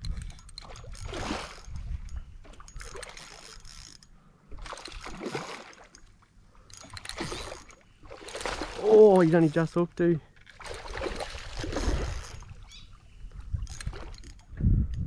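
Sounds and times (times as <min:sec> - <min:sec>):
fish splashing in water: 0:04.6 - 0:05.9, 0:06.8 - 0:09.4, 0:10.6 - 0:12.8.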